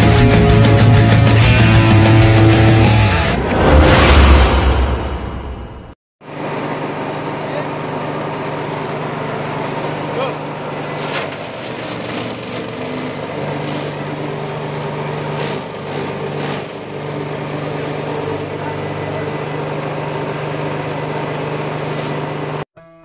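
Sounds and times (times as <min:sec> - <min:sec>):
petrol engine running: 0:06.2 - 0:22.6
cutter whirring: 0:06.4 - 0:22.6.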